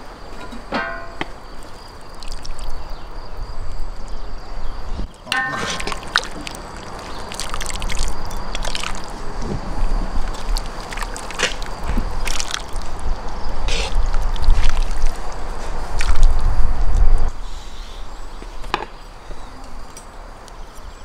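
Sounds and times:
metal clanks of cauldron lid: 0:00.4 - 0:01.3, 0:05.2 - 0:06.0
broth sloshing and dripping: 0:02.1 - 0:02.8, 0:05.2 - 0:13.4, 0:14.0 - 0:16.5
ladle scooping soup: 0:05.2 - 0:09.3.

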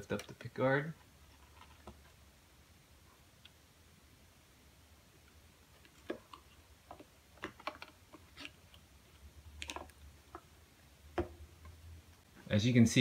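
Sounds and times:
clicks and taps of handling: 0:00.0 - 0:00.5, 0:05.8 - 0:08.8.

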